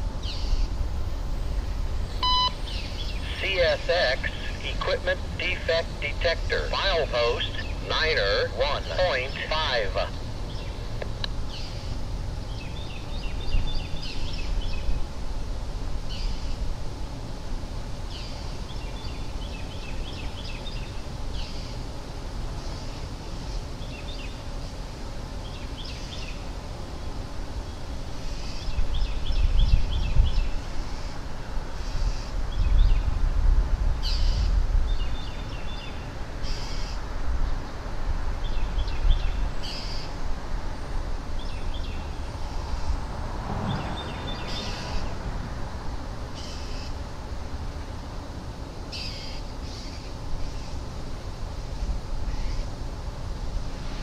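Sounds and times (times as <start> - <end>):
steady low rumble: 0.0 - 21.3
birds calling high notes: 2.1 - 10.8.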